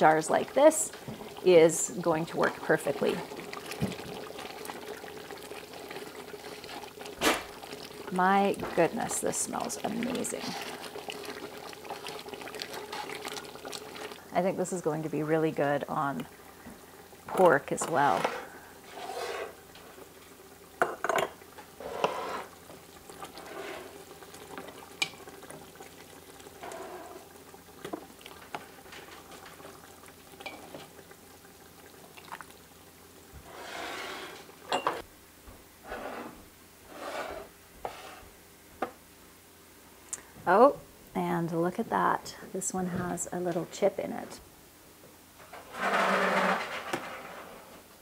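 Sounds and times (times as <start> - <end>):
metal utensil scraping a pot: 17.9 - 19.6, 21.8 - 22.6, 45.5 - 47.6.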